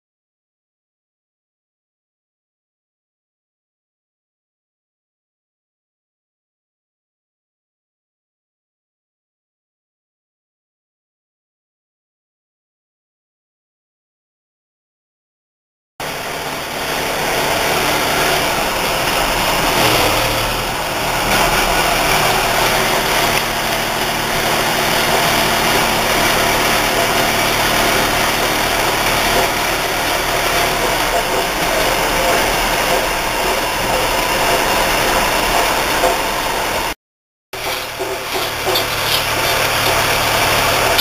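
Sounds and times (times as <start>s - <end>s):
metal-working machinery din: 16.0s - 37.0s, 37.6s - 41.0s.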